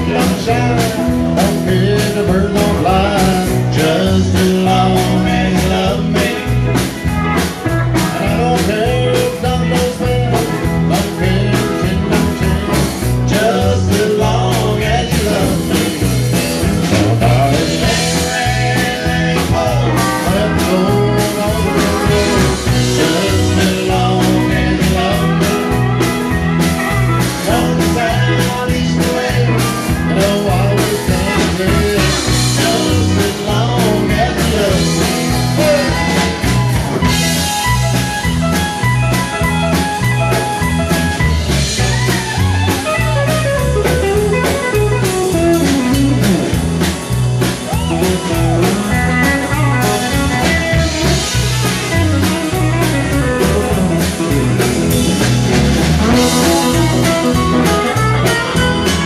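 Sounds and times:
man singing: 0.0s - 37.7s, 41.9s - 46.6s, 47.4s - 59.0s
country band playing: 0.0s - 59.0s.

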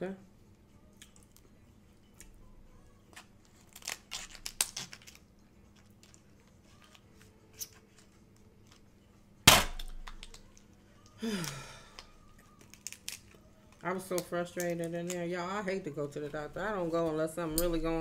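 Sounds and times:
loud sharp shell crack: 9.5s - 10.2s.

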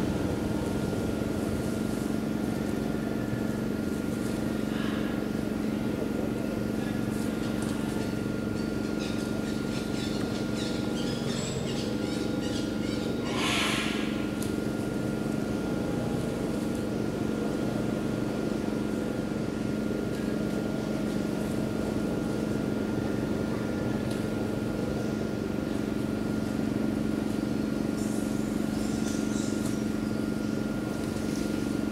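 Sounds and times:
steady low hum: 0.0s - 31.9s.

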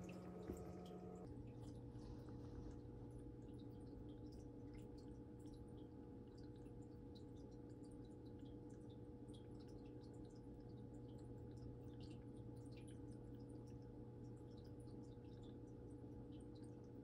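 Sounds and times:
aquarium filter hum: 0.0s - 17.0s
dripping and bubbling water: 0.0s - 17.0s.

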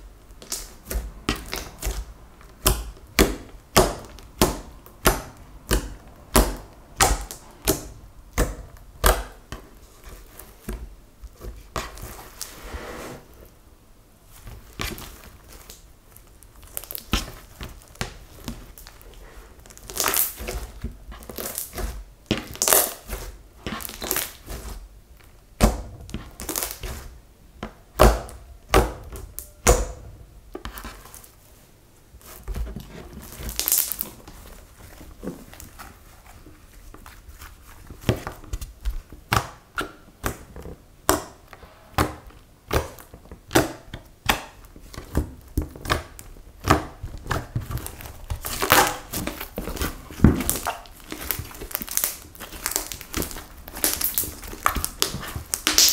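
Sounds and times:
slime squishing: 0.2s - 13.5s, 14.3s - 55.9s
sticky slime pops: 42.0s - 55.9s.

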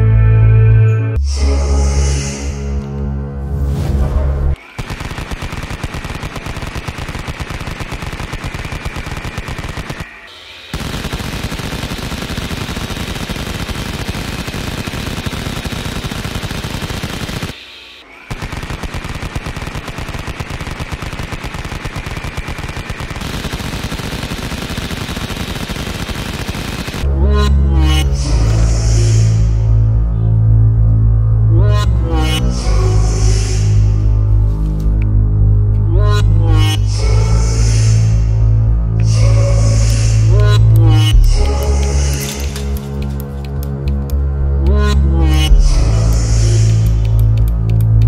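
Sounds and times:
toy rifle machine-gun sound effect: 4.6s - 27.1s.

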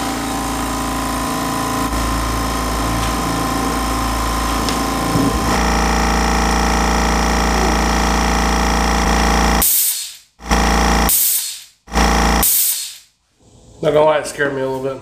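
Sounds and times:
air compressor running: 0.0s - 13.1s
air hissing bursts: 9.6s - 10.3s, 11.1s - 11.8s, 12.4s - 13.1s.

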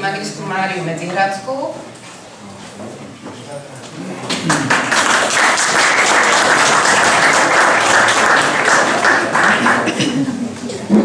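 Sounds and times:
audience applauding: 4.3s - 10.4s.

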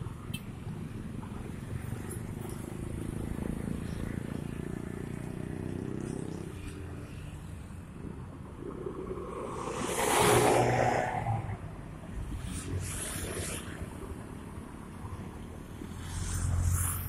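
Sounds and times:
motorcycle passing by: 2.0s - 7.1s, 9.3s - 11.6s
cars driving past: 2.1s - 14.5s.

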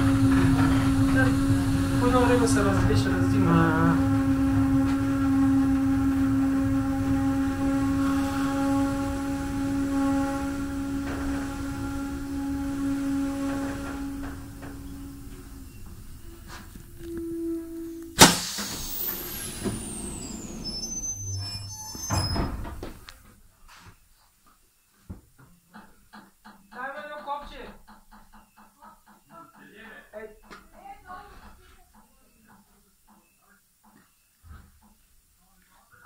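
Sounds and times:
air hissing with whistle: 0.0s - 22.8s
low hum: 0.0s - 23.1s
sharp bang: 18.1s - 22.7s.

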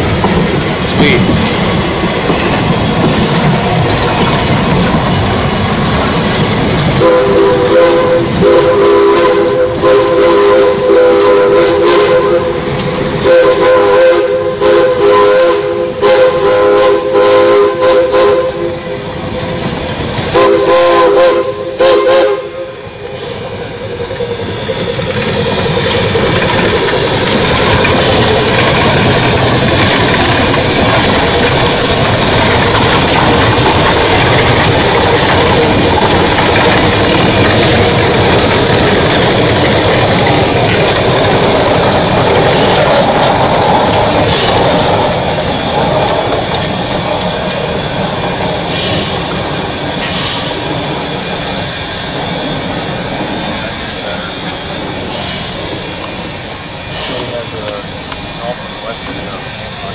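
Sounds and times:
thin high squeal: 0.0s - 7.2s, 18.7s - 20.7s, 22.4s - 59.9s
locomotive steam and running gear: 0.0s - 59.9s
steam locomotive chime whistle: 0.0s - 59.9s.

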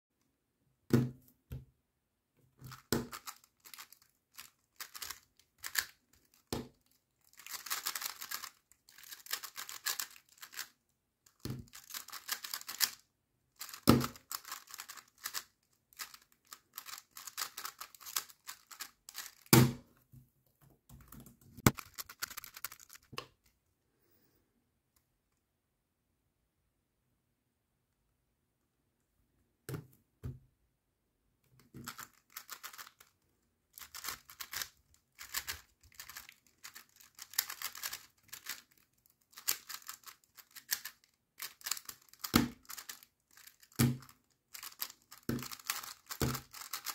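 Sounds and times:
plastic cube clicking: 2.6s - 10.7s, 11.3s - 13.0s, 13.6s - 19.6s, 21.2s - 23.4s, 31.8s - 33.1s, 33.8s - 46.9s.

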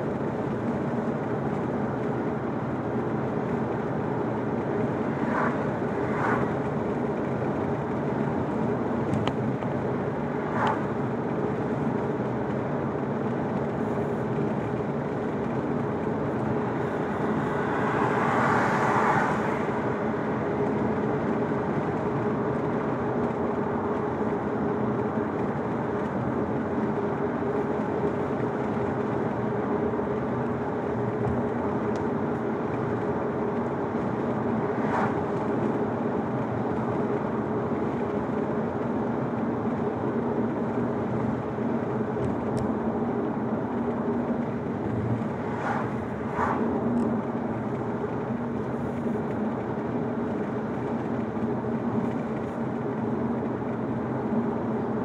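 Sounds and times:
car engine and tyre noise: 0.0s - 55.0s
rushing noise: 4.8s - 6.8s, 34.3s - 35.7s, 44.5s - 47.7s.

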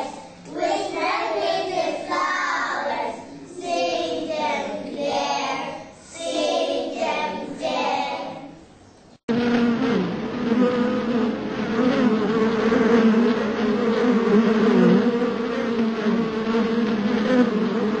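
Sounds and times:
bee-like buzzing: 9.3s - 18.0s.

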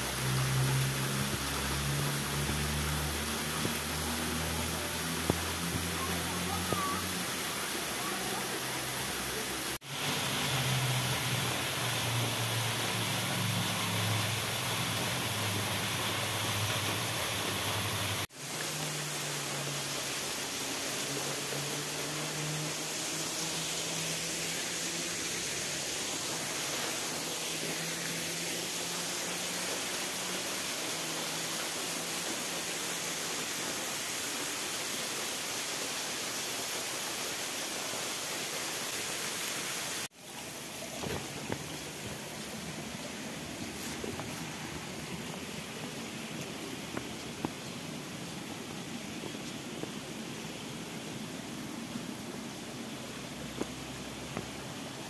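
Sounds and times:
waterfall and stream rushing: 0.0s - 55.0s.

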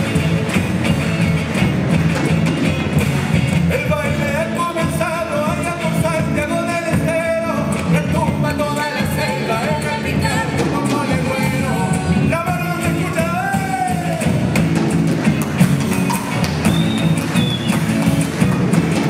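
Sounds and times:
live rock band playing: 0.0s - 19.0s
person singing: 3.7s - 14.5s.

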